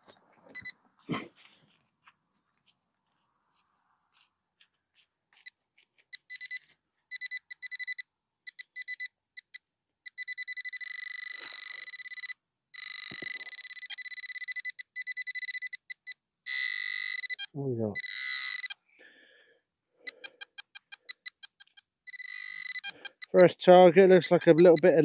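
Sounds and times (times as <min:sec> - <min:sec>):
metal detector probe beeping: 0:00.5 - 0:00.8, 0:06.1 - 0:18.8, 0:20.0 - 0:25.0.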